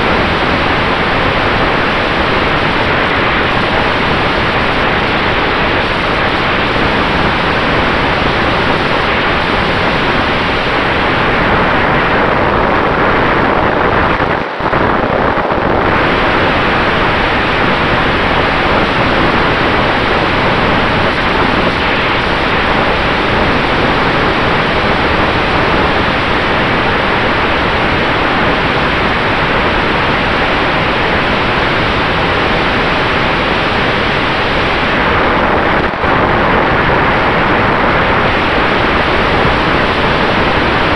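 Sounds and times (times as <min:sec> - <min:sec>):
wind rushing over microphone: 0:00.0 - 0:40.9.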